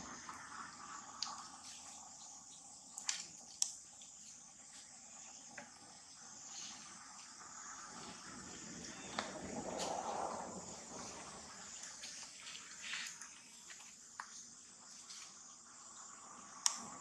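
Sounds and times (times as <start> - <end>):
insects chirring: 0.0 - 17.0
sharp clicks or snaps: 16.6 - 16.9.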